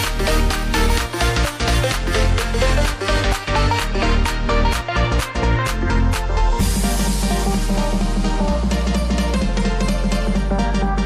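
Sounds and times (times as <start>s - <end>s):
background music with beat and bass: 0.0s - 11.0s.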